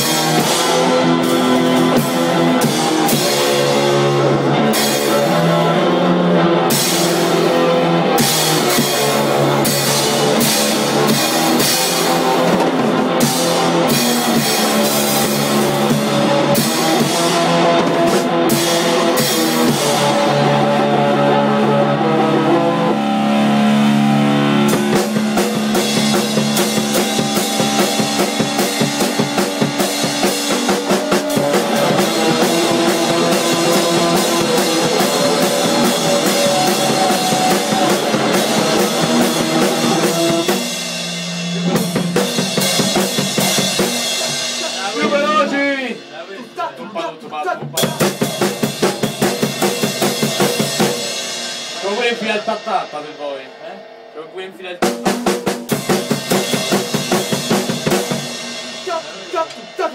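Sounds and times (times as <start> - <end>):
guitar chords: 0.0 - 59.9
rock drum kit playing: 0.0 - 59.9
cymbal crashes: 18.5 - 46.7, 48.1 - 59.9.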